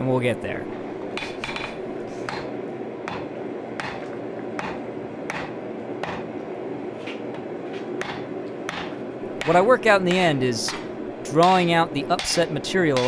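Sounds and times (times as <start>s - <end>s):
steady background hum: 0.0s - 13.0s
hammer striking hot steel on anvil: 1.2s - 6.3s, 8.0s - 13.0s.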